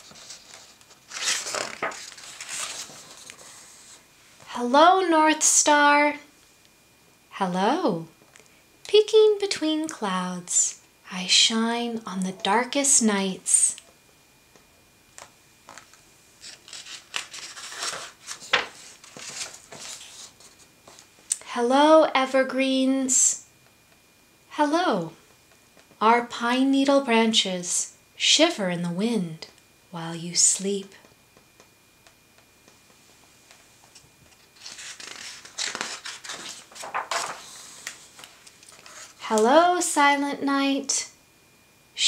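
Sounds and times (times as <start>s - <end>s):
book page rustling: 0.0s - 4.0s, 15.7s - 21.1s, 33.9s - 39.2s.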